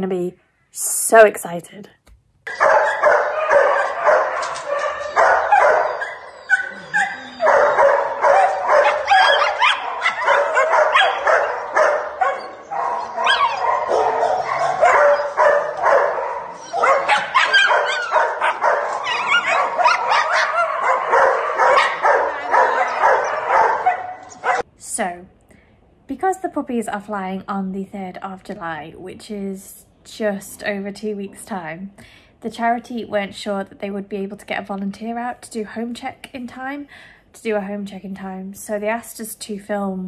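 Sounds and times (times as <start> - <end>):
dogs barking and yapping: 2.5 - 24.7.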